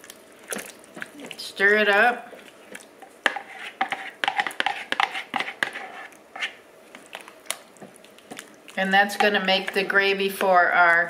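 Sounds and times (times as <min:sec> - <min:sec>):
spoon knocking and scraping crock: 0:03.1 - 0:06.6.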